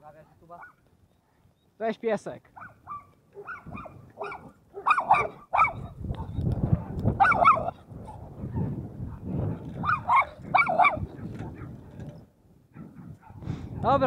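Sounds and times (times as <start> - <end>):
dog barking: 0.6 - 0.8, 2.6 - 11.8, 12.7 - 13.9.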